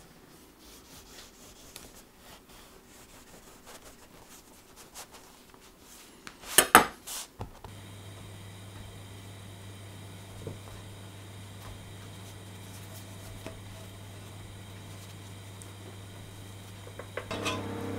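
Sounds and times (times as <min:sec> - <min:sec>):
low hum with faint hiss: 0:07.4 - 0:17.9
knife clattering on board: 0:17.2 - 0:17.7.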